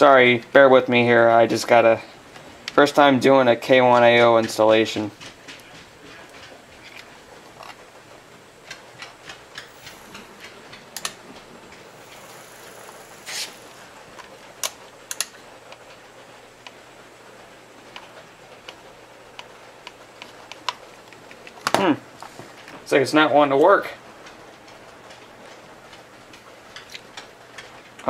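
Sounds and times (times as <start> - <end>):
small parts clicking and tapping: 8.6 - 15.8
short scrape: 12.0 - 13.9.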